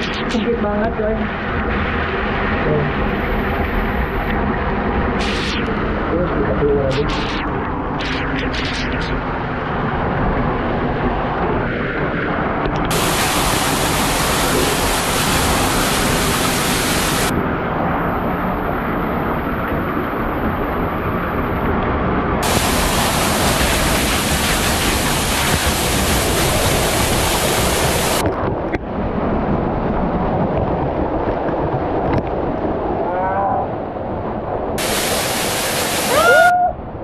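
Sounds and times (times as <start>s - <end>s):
waterfall pouring and splashing: 12.9s - 17.4s, 22.4s - 28.2s, 34.8s - 36.5s.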